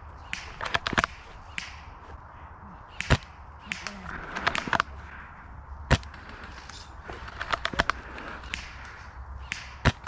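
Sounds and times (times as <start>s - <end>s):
airsoft shots cracking: 2.9s - 5.0s.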